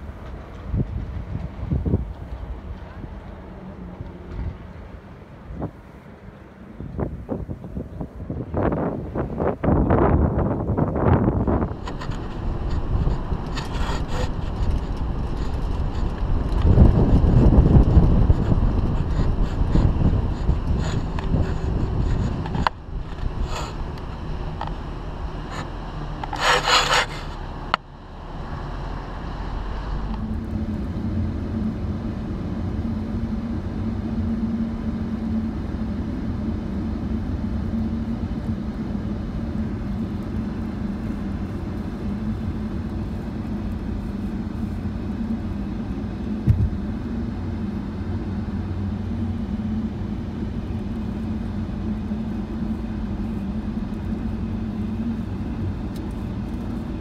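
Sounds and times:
car interior road and engine drone: 0.0 - 57.0.

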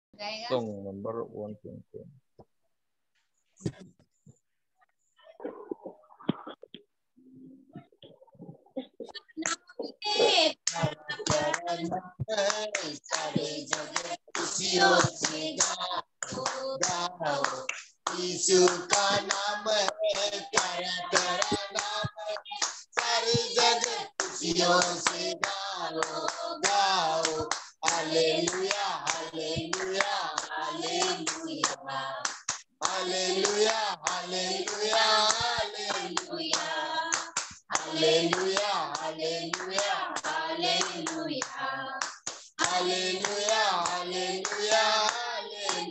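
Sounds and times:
women singing a hymn: 9.8 - 45.9
hands clapping in time: 10.6 - 45.8.

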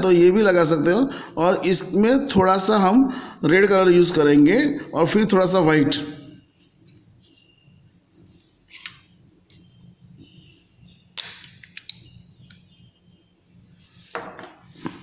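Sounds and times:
soft scrape: 13.7 - 15.0.

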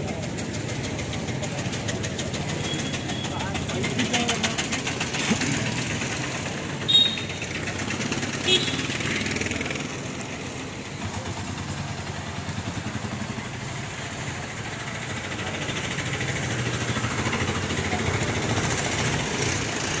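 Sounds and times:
traffic engines passing: 0.0 - 20.0.

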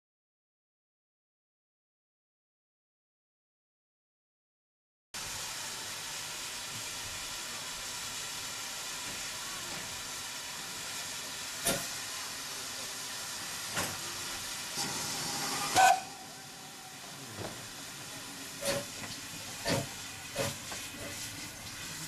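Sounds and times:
steam locomotive hissing: 5.2 - 22.0.

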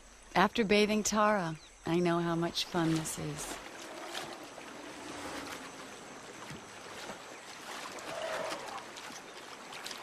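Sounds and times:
water sloshing and splashing: 2.2 - 10.0.

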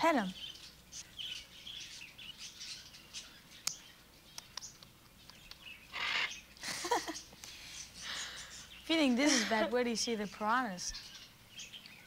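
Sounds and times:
cockatoo twittering: 0.0 - 12.0
cockatoo rasping call: 5.9 - 6.4.

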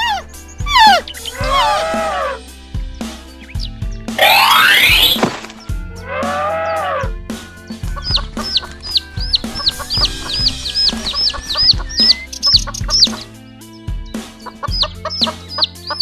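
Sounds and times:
light background music: 0.0 - 16.0
chicks peeping: 7.6 - 16.0.

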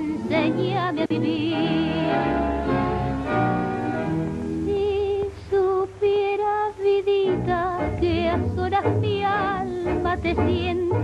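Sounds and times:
woman singing operatically: 0.0 - 2.6, 4.6 - 11.0
tango instrumental accompaniment: 0.0 - 5.9, 7.2 - 11.0.

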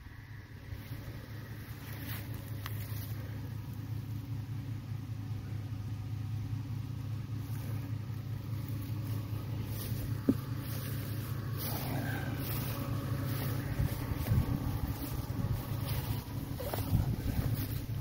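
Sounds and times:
tractor engine running: 0.0 - 18.0
wind buffeting microphone: 11.6 - 18.0.

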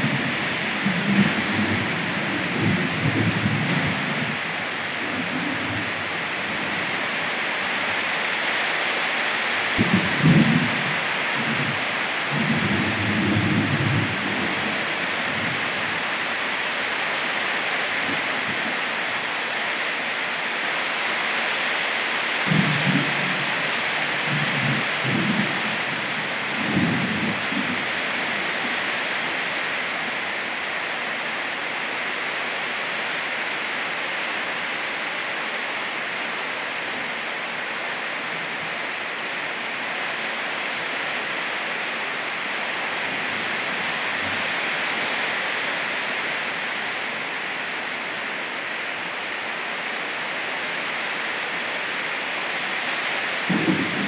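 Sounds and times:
rain falling: 0.0 - 54.0.

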